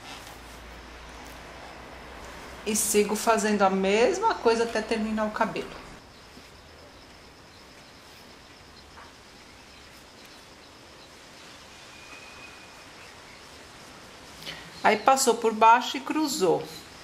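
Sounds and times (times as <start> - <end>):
background hiss: 0.0 - 17.0
faint high-pitched tone: 11.8 - 13.0.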